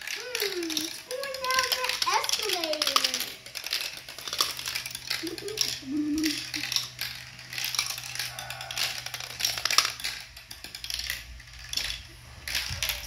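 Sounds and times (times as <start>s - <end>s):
glass marbles clattering on plastic track: 0.0s - 13.0s
low motor hum: 0.0s - 13.0s.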